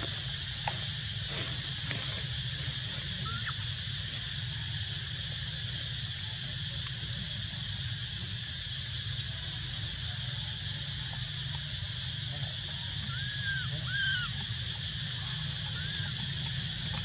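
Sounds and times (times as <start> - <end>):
steady high hiss: 0.0 - 17.0
rising and falling calls: 13.1 - 14.4.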